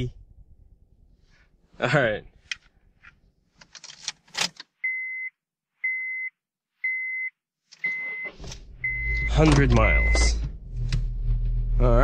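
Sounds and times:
car warning chime: 0:06.9 - 0:10.5
car engine starting and running: 0:07.7 - 0:12.0.

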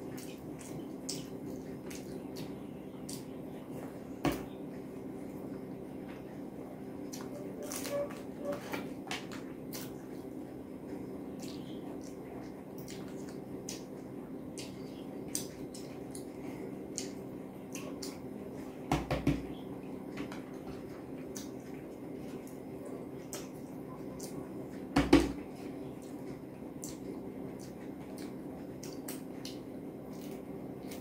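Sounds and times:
wet chewing clicks: 0:00.0 - 0:03.4, 0:09.2 - 0:10.2, 0:10.8 - 0:18.3, 0:20.7 - 0:24.9, 0:25.8 - 0:31.0
steady low hum: 0:00.0 - 0:31.0.

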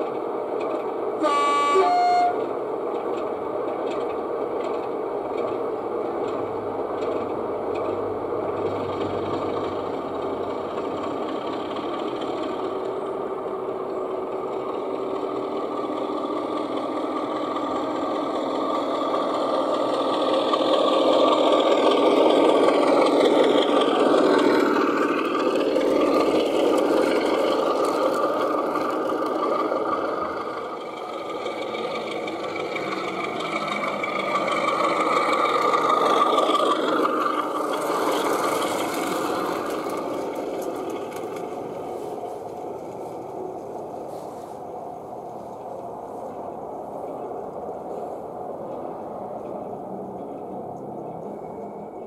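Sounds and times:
diesel engine running: 0:00.0 - 0:52.0
engine whine: 0:00.0 - 0:52.0
two-tone train horn: 0:01.2 - 0:02.5.

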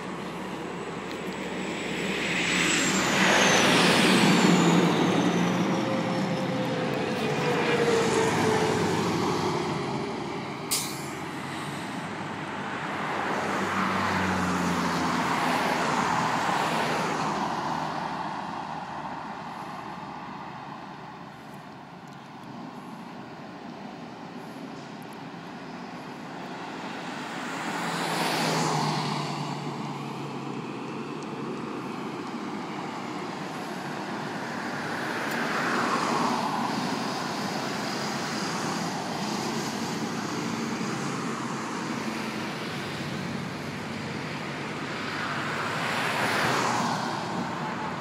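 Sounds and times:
trucks driving past: 0:00.0 - 0:48.0.

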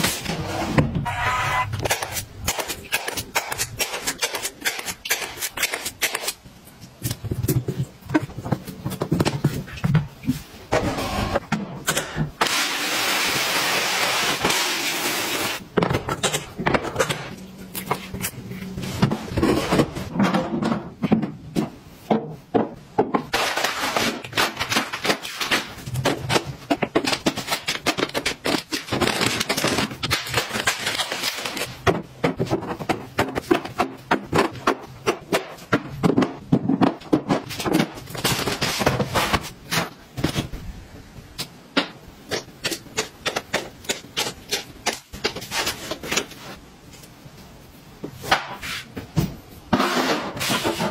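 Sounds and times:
plastic drawers clicking and knocking: 0:24.0 - 0:40.5.

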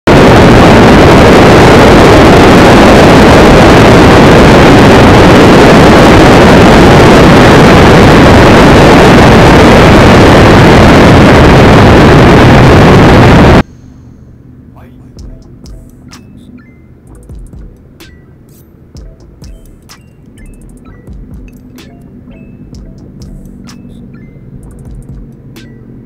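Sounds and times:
wind on microphone: 0:00.1 - 0:13.6.

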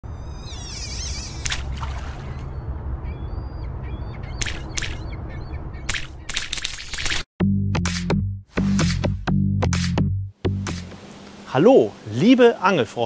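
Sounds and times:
harsh bird calls: 0:00.1 - 0:06.6
birds chirping: 0:00.1 - 0:06.7.

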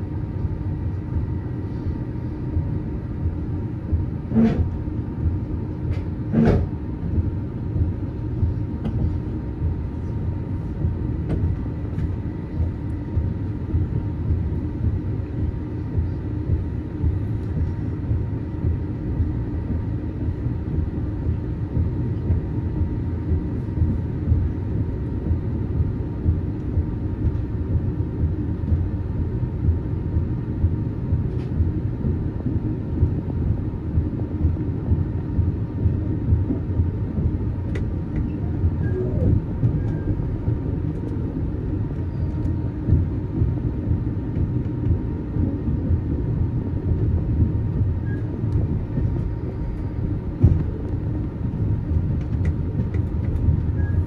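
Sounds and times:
faint high hum: 0:00.0 - 0:54.0
train wheels rumbling on rails: 0:23.3 - 0:54.0.

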